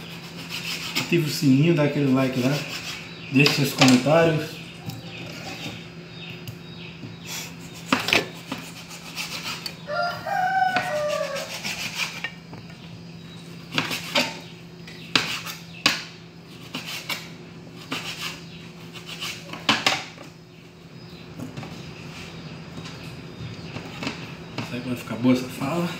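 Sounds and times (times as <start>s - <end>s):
rooster crowing: 9.8s - 11.8s.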